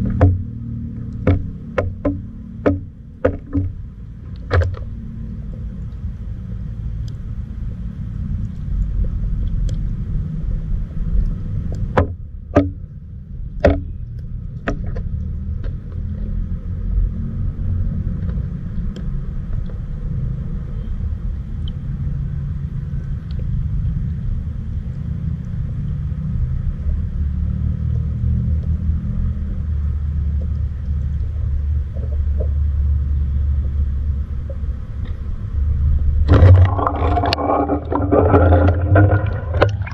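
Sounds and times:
underwater river rumble: 0:29.5 - 0:39.9.

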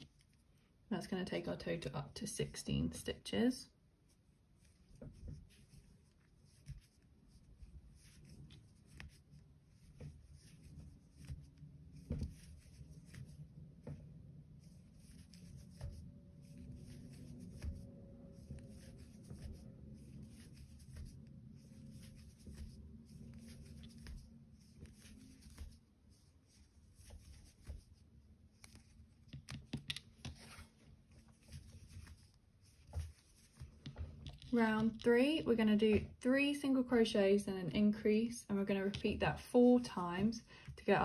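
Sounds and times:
crochet hook scratching yarn: 0:00.0 - 0:00.5, 0:04.0 - 0:36.0.

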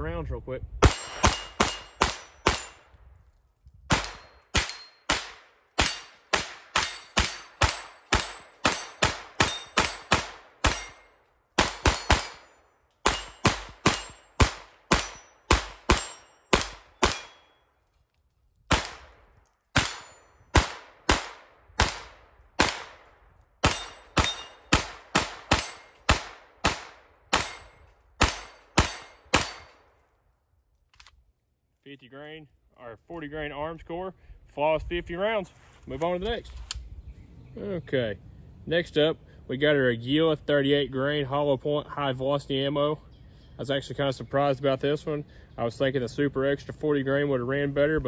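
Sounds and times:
pistol shots: 0:00.8 - 0:02.8, 0:03.9 - 0:17.6, 0:18.7 - 0:29.9.

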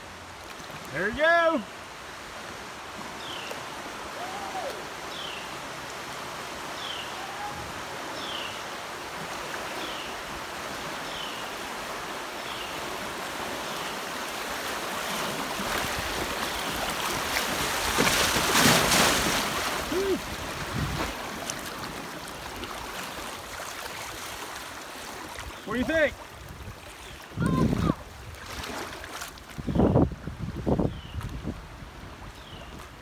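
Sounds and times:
rushing creek rapids: 0:00.0 - 0:33.0
whitewater churning beside boat: 0:00.0 - 0:33.0.

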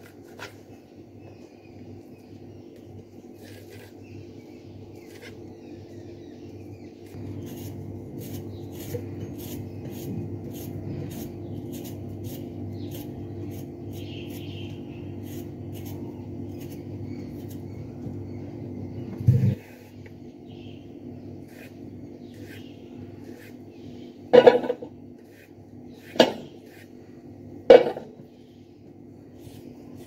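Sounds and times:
steady low hum: 0:00.0 - 0:30.0
knife scraping vegetable peel: 0:03.3 - 0:04.2, 0:04.9 - 0:05.5, 0:07.1 - 0:17.7, 0:21.4 - 0:24.0, 0:24.6 - 0:27.0, 0:29.3 - 0:30.0.

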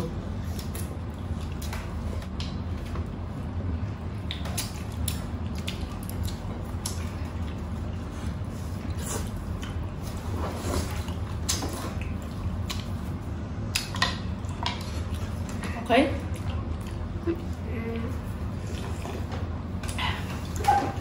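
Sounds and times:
food squishing in hands: 0:00.0 - 0:21.0
steady low hum: 0:00.0 - 0:21.0
wet chewing and mouth clicks: 0:00.4 - 0:03.3, 0:04.1 - 0:10.2, 0:10.9 - 0:15.6, 0:16.2 - 0:17.6.

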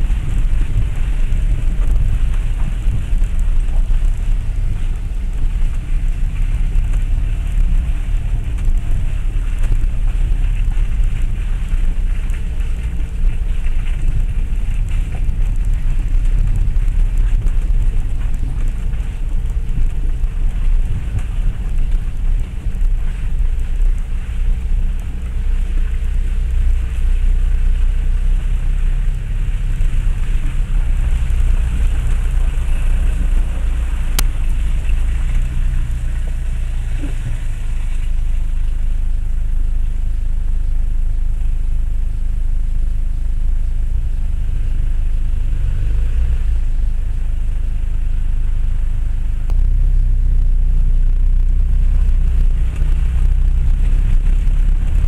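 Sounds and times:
diesel engine rumble in car cabin: 0:00.0 - 0:55.0
running gear on rough track: 0:00.0 - 0:55.0.

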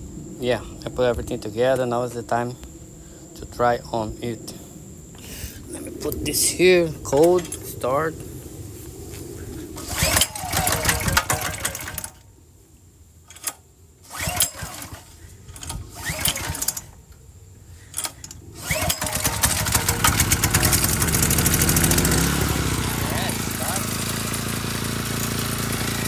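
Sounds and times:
recoil starter pulls: 0:07.1 - 0:07.8, 0:09.8 - 0:12.2, 0:13.3 - 0:17.1, 0:17.9 - 0:26.0
generator engine running: 0:09.8 - 0:12.2, 0:14.0 - 0:16.8, 0:18.0 - 0:26.0.

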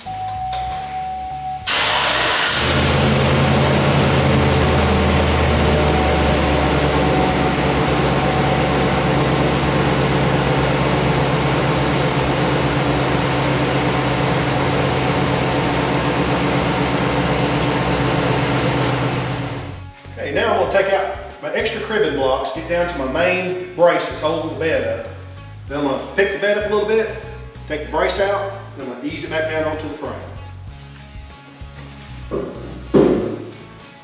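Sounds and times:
truck engine starting and idling: 0:00.0 - 0:19.9.

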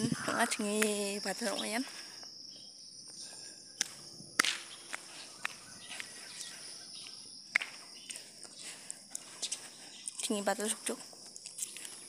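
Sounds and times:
high-pitched insect drone: 0:00.0 - 0:12.0
footsteps on road: 0:03.0 - 0:12.0.

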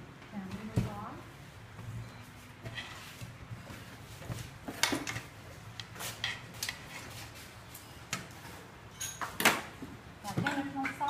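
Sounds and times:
dishes and utensils clinking: 0:08.9 - 0:09.7.

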